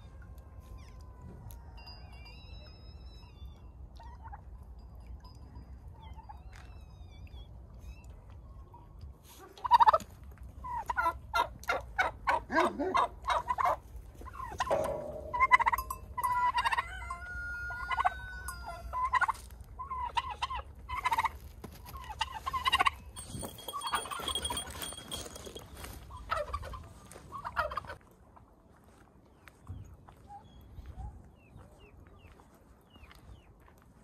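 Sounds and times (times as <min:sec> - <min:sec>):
turkeys gobbling: 0:09.6 - 0:10.0, 0:10.6 - 0:23.0, 0:26.2 - 0:28.0.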